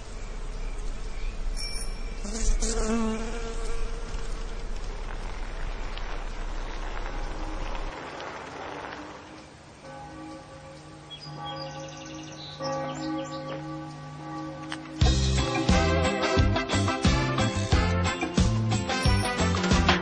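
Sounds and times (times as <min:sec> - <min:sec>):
low steady hum: 0:00.0 - 0:08.0
insects buzzing: 0:00.0 - 0:16.3.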